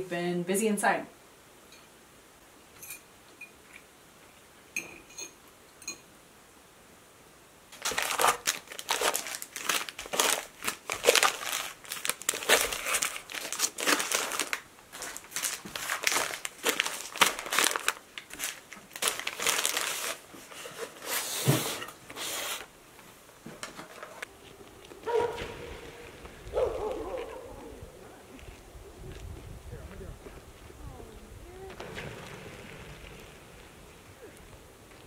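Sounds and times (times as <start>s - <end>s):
wrapping paper rustling and crinkling: 7.7s - 22.7s.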